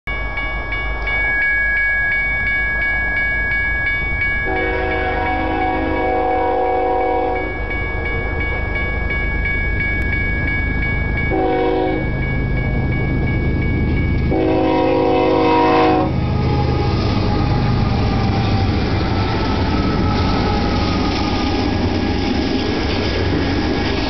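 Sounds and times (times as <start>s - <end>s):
crossing bell ringing: 0.1s - 24.0s
locomotive air horn: 4.5s - 7.5s, 11.3s - 12.0s, 14.3s - 17.8s.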